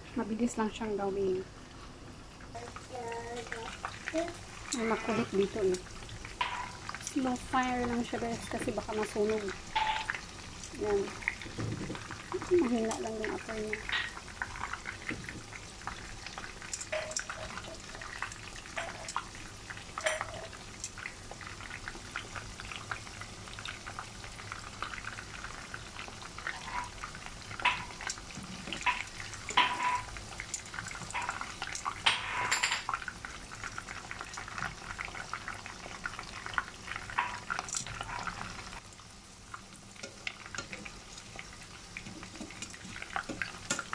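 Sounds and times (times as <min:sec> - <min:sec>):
meat sizzling in oil: 0:00.8 - 0:43.9
oil popping: 0:02.7 - 0:38.8, 0:39.5 - 0:43.9.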